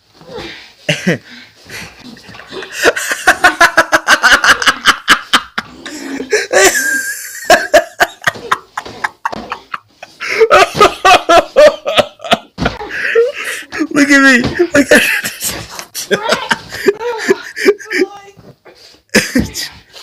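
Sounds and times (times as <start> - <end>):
boy laughing hard: 2.6 - 18.1.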